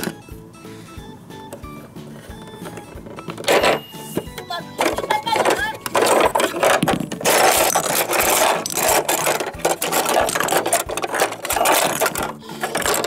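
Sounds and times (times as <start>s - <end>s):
plastic toy pieces clattering: 2.6s - 13.0s.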